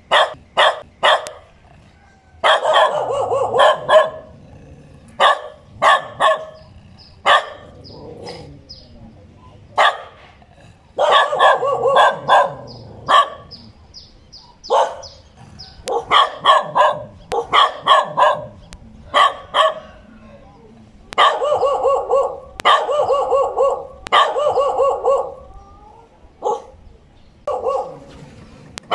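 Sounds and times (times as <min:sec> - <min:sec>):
dog barking: 0:00.1 - 0:01.5, 0:02.4 - 0:04.3, 0:05.2 - 0:06.6, 0:07.2 - 0:07.7, 0:09.8 - 0:10.2, 0:11.0 - 0:13.6, 0:14.7 - 0:15.2, 0:15.8 - 0:20.0, 0:21.1 - 0:25.4, 0:26.4 - 0:26.8, 0:27.5 - 0:28.0.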